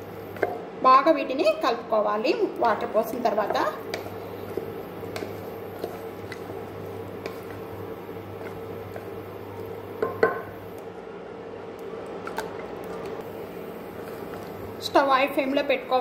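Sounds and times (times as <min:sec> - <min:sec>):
steady low hum: 0:00.0 - 0:16.0
spatula sloshing and scraping pot: 0:03.0 - 0:09.8.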